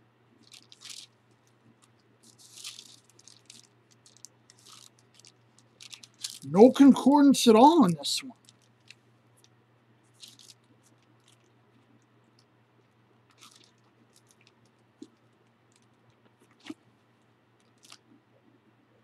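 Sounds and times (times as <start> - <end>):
sharp paper tick: 0.4 - 6.4
pages rustling: 1.8 - 6.5.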